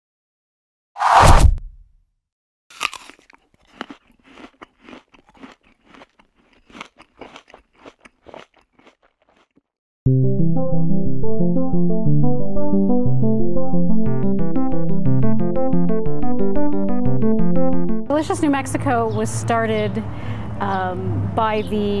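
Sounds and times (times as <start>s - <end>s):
falling whoosh: 1.0s - 1.7s
crisp bite into apple: 2.7s - 9.6s
crunchy chewing: 2.7s - 9.7s
keyboard music: 10.1s - 18.9s.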